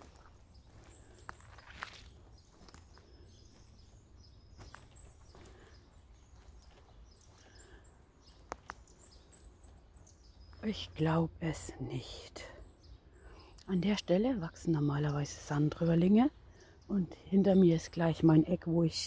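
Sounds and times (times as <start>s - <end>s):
twigs cracking underfoot: 0.0s - 3.6s, 8.3s - 9.0s
footsteps on leaf litter: 0.0s - 3.8s.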